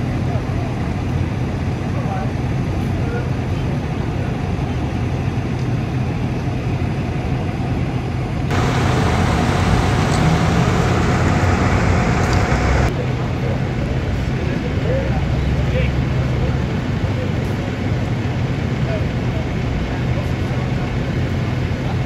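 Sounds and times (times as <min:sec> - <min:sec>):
fire engines rumbling: 0:00.0 - 0:22.0
loud hiss with faint whine: 0:08.5 - 0:12.9.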